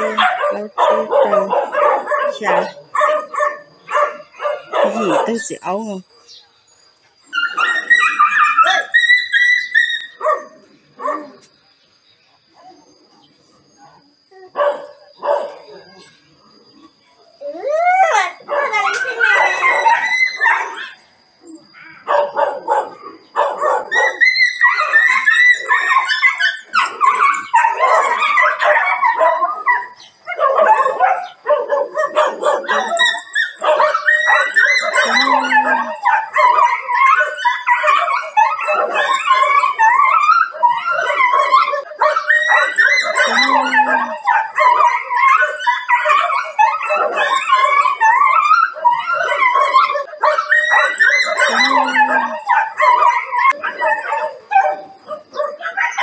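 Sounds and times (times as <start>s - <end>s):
dogs fighting yelping barking: 0.0s - 11.5s, 14.5s - 56.0s.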